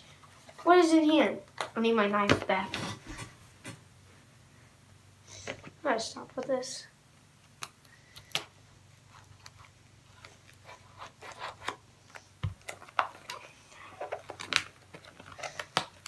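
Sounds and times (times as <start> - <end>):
packaging being handled: 9.1 - 16.0.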